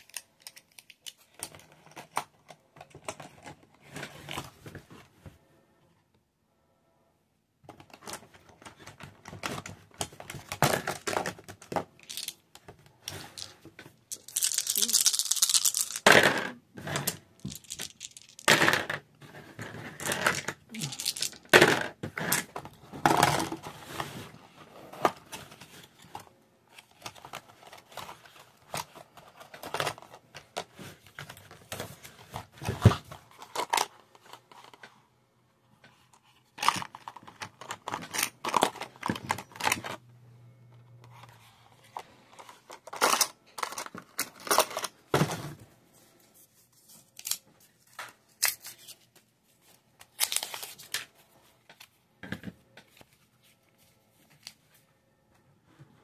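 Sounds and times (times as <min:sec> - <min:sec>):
game pieces clicking and knocking: 0:10.8 - 0:12.4, 0:13.3 - 0:19.0, 0:19.9 - 0:22.5.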